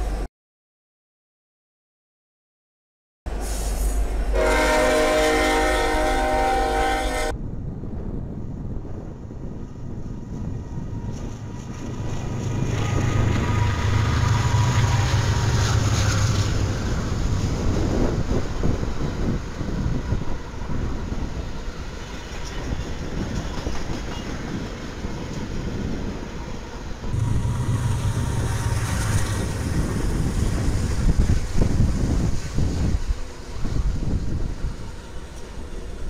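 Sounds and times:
diesel locomotive engines: 0.0 - 0.3, 3.3 - 36.0
wheels rumbling on rail: 3.3 - 36.0.

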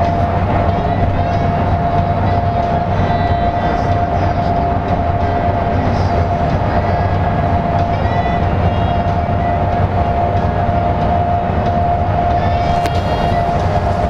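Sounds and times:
bus engine and tyre drone: 0.0 - 14.0
constant high whine: 0.0 - 14.0.

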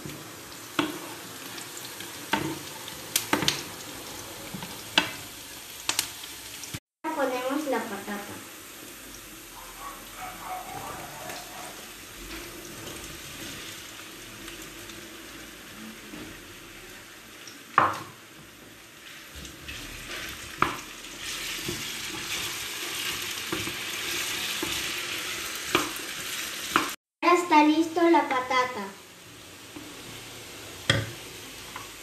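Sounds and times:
potatoes sizzling in oil: 0.0 - 32.0
sharp knocks against pan: 30.9 - 31.2.

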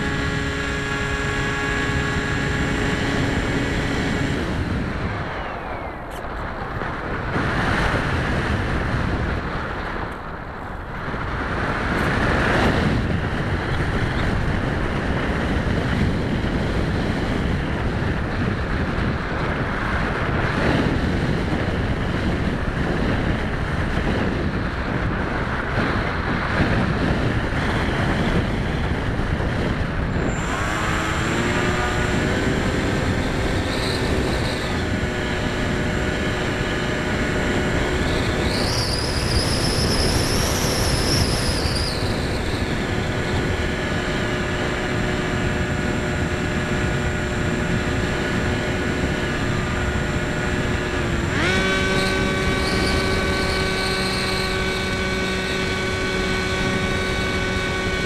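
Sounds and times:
electric motor whine: 0.0 - 8.5, 26.9 - 58.0
wind rushing over microphone: 0.0 - 58.0.

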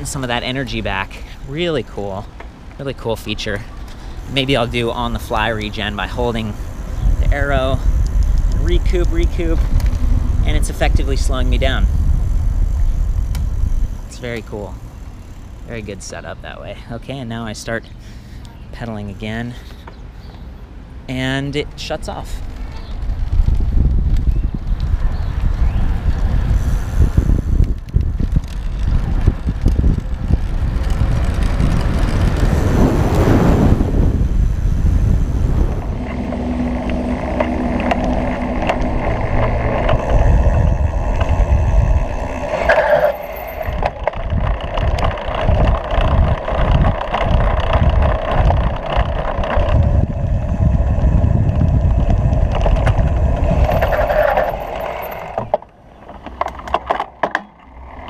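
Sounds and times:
wind rushing over microphone: 0.0 - 15.0, 22.2 - 56.8
bike knocks and rattles: 35.8 - 50.2, 50.9 - 57.8.

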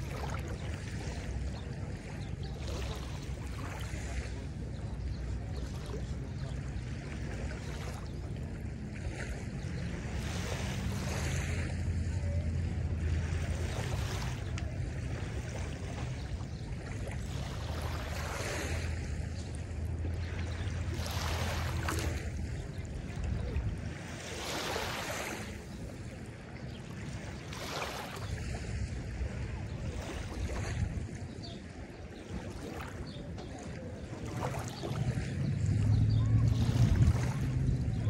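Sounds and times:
waves lapping on sandy shore: 0.0 - 38.0
wind rumble on microphone: 0.0 - 38.0.

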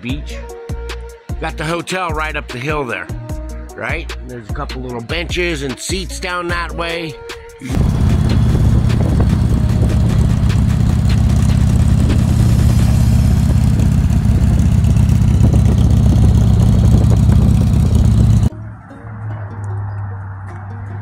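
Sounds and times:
motorcycle engine rumbling: 7.7 - 18.5.

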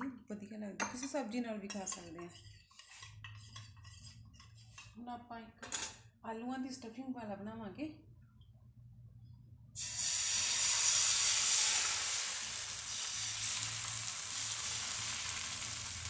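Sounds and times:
batter sizzling in a frying pan: 9.8 - 16.0.

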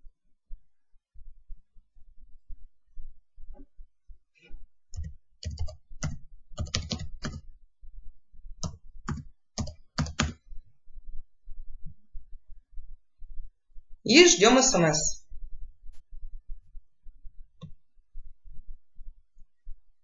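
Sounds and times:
computer keyboard keys tapping: 4.9 - 7.4, 8.6 - 10.4.

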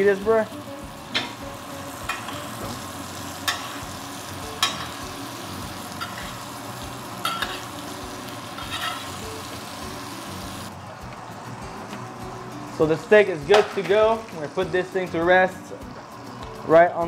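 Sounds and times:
steak sizzling in butter: 0.0 - 10.8
spoon clinking against pan: 4.6 - 5.0, 7.2 - 7.7.

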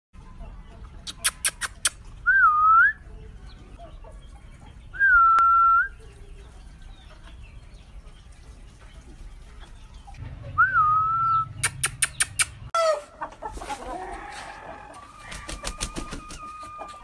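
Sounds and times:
whistled notes: 5.0 - 6.0, 10.6 - 12.5
sharp clicks: 11.6 - 12.7.

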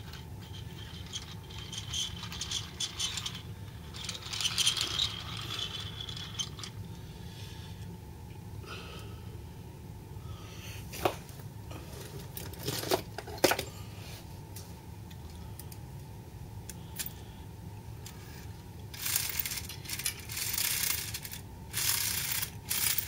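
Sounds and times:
toy truck rattling and scraping: 0.0 - 6.8, 18.9 - 23.0.

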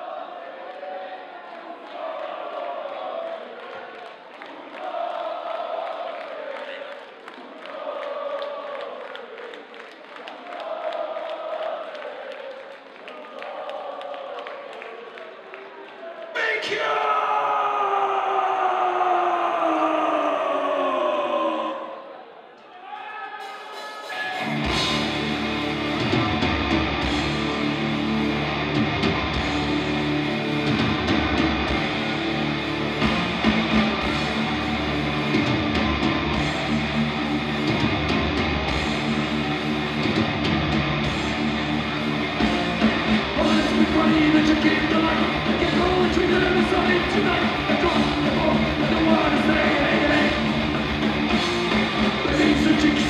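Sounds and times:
heavy metal band playing: 23.7 - 53.0.

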